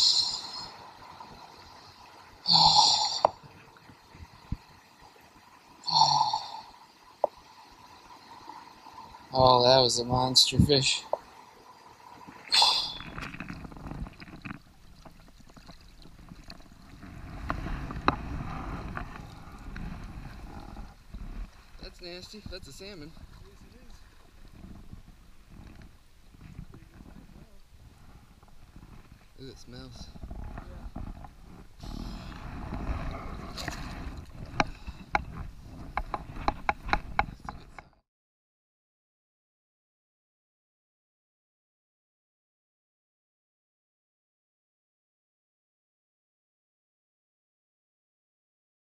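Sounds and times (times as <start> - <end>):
water sloshing and splashing: 6.6 - 38.0.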